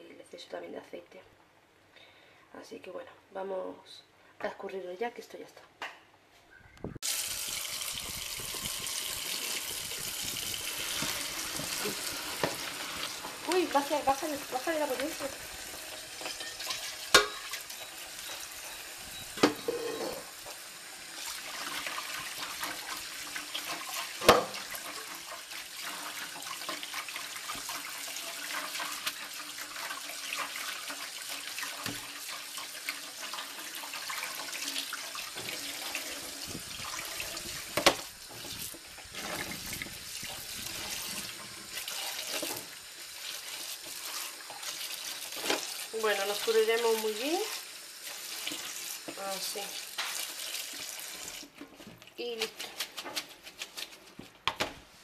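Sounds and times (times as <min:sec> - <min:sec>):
tap water running into sink: 0:07.0 - 0:51.6
hands tossing wet pasta: 0:51.8 - 0:54.4.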